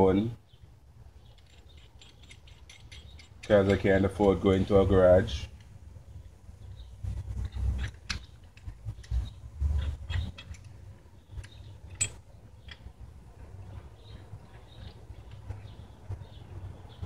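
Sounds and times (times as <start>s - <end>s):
socket ratchet clicking: 1.2s - 4.4s.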